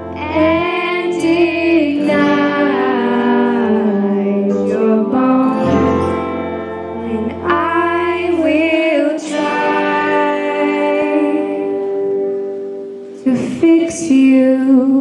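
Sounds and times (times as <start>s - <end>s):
girls singing: 0.0s - 6.3s, 6.9s - 12.4s, 13.2s - 15.0s
band playing pop ballad: 0.0s - 10.8s.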